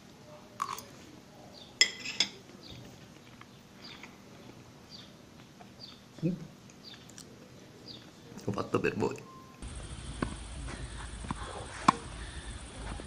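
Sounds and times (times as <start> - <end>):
fork clinking against a plate: 1.8 - 2.4.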